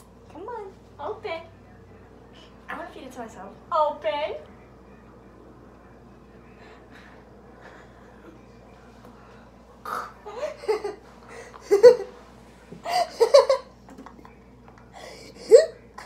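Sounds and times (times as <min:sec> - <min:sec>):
girls laughing: 0:10.3 - 0:12.2, 0:12.8 - 0:13.8.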